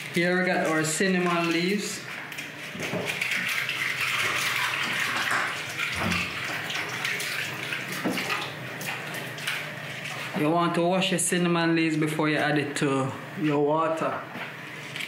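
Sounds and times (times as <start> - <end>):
tap water splashing into sink: 2.4 - 9.7.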